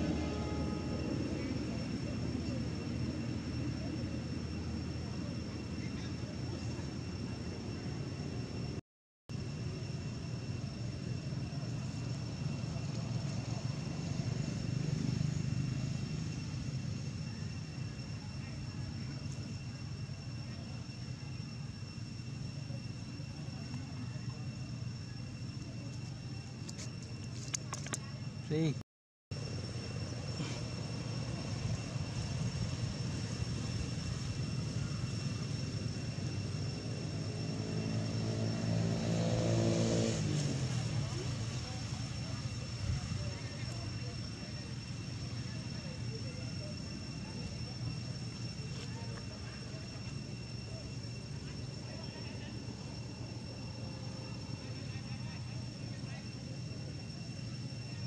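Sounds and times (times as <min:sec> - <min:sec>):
motor engine droning: 0:00.0 - 0:08.8, 0:29.5 - 0:56.5
low outdoor rumble: 0:00.0 - 0:28.8, 0:29.4 - 0:58.0.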